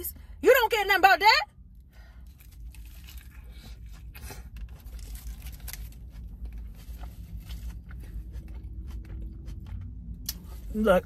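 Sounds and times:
lettuce crunching while eating: 0:02.2 - 0:10.6.

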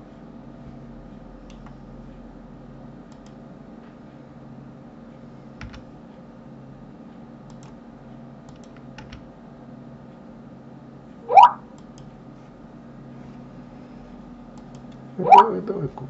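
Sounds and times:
low electrical hum: 0:00.0 - 0:16.0
keyboard and mouse clicking: 0:08.5 - 0:09.2.

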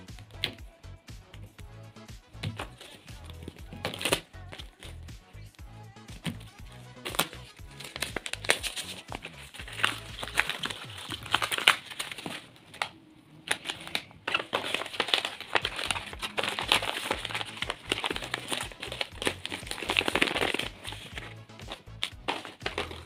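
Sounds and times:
paper crinkling and rustling: 0:02.4 - 0:05.0, 0:06.2 - 0:23.0.

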